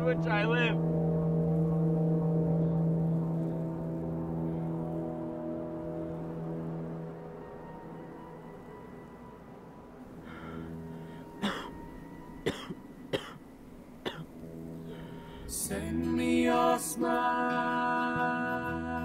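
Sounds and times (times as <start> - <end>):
low music drone: 0.0 - 19.0
man coughing: 11.4 - 11.8, 12.4 - 13.4.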